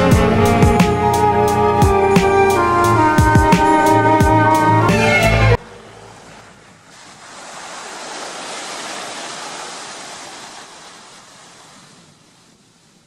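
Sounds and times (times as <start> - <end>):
ocean wave washing in: 5.6 - 13.0.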